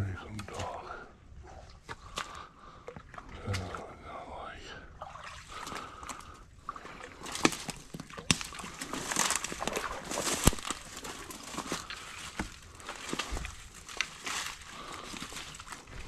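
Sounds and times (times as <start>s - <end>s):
boot footsteps crunching: 7.3s - 16.0s.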